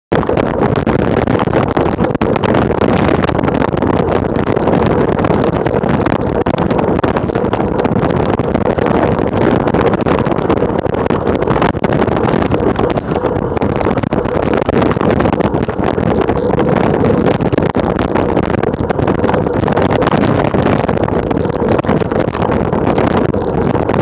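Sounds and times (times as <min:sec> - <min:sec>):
wind rushing over microphone: 0:00.1 - 0:24.0.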